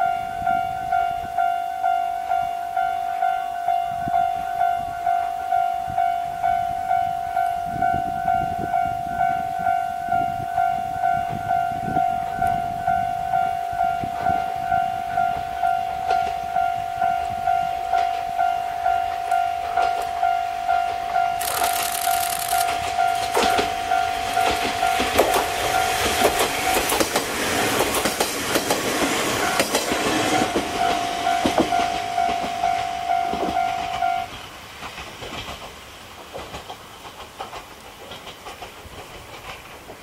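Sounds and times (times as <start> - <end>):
diesel railcars approaching: 0.0 - 40.0
level crossing bell ringing: 22.6 - 26.8, 30.4 - 34.3.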